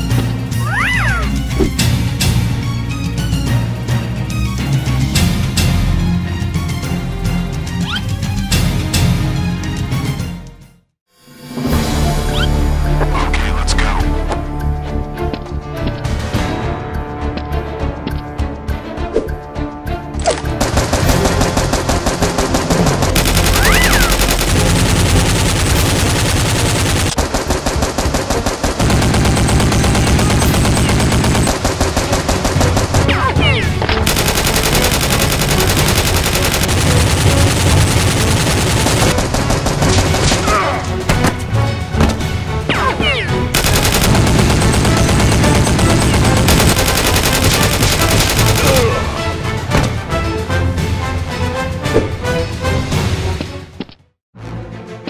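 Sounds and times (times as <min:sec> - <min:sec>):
rapid automatic gunfire: 0:20.6 - 0:33.4, 0:34.0 - 0:40.5, 0:43.5 - 0:49.0.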